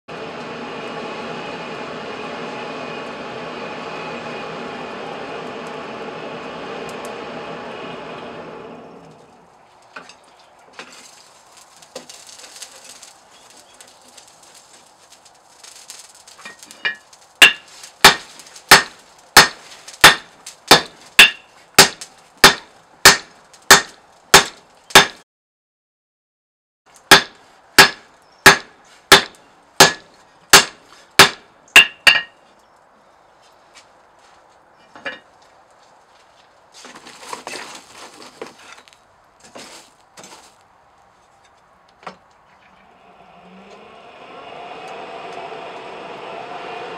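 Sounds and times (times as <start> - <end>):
forge fire hissing: 0.1 - 9.6, 10.8 - 22.3, 42.9 - 46.9.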